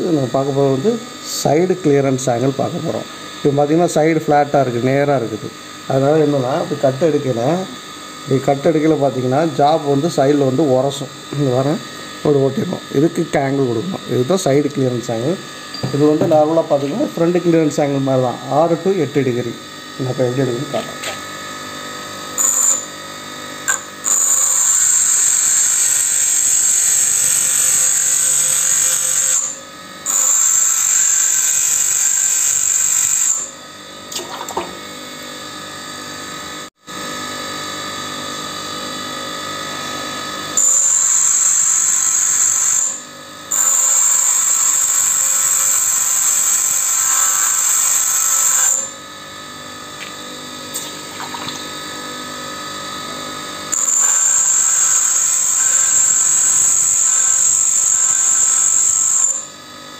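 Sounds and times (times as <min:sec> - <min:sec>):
bench grinder motor hum: 0:00.0 - 0:59.9
high metal grinding: 0:04.4 - 0:33.6, 0:40.5 - 0:49.0, 0:53.7 - 0:59.5.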